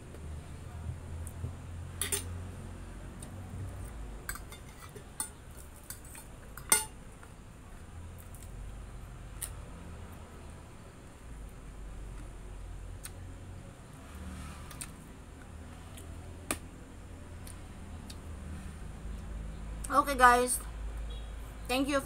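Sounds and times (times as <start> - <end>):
fork clinking and scraping on plate: 2.0 - 2.3, 4.3 - 6.9.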